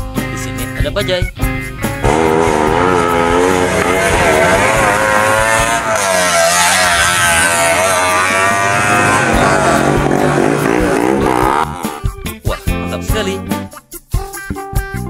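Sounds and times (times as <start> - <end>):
auto-rickshaw engines revving: 2.0 - 12.0.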